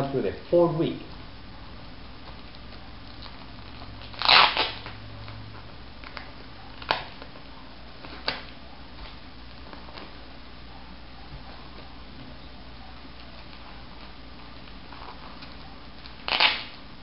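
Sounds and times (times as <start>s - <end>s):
plastic wrapping crinkling: 2.1s - 10.4s, 13.0s - 16.8s.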